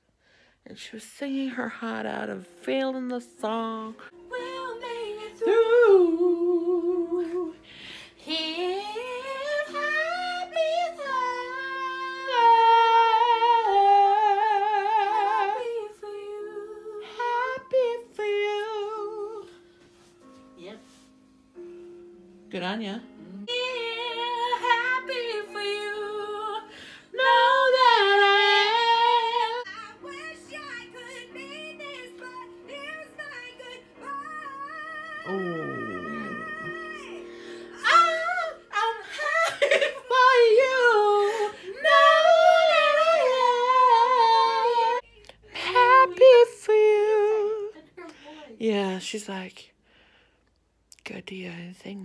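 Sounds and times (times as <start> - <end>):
woman singing: 0.7 - 19.6, 23.2 - 48.1
song with backing chords: 2.2 - 47.7
woman singing loudly: 35.0 - 36.9.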